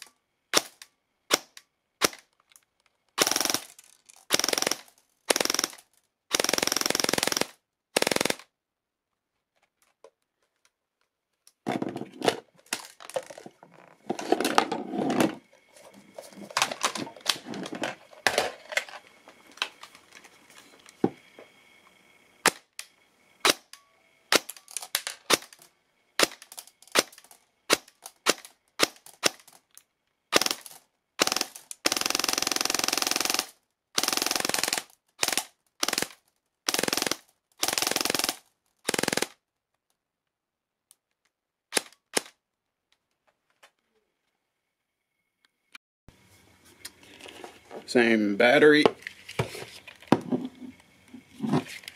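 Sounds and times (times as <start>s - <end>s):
electric airsoft gun firing: 0.0s - 2.3s, 3.2s - 8.5s, 23.4s - 24.6s, 26.2s - 29.5s, 30.3s - 39.4s.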